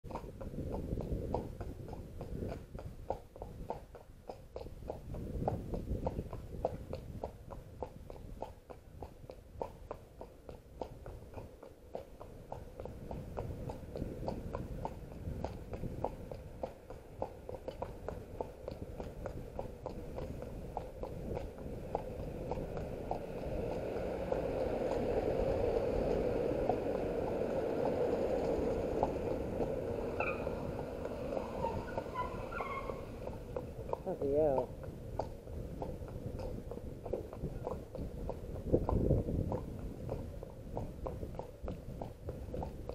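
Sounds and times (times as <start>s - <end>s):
horse hooves on tarmac: 0.0s - 42.9s
car driving slowly past: 0.1s - 42.9s
low rumble: 17.7s - 42.7s.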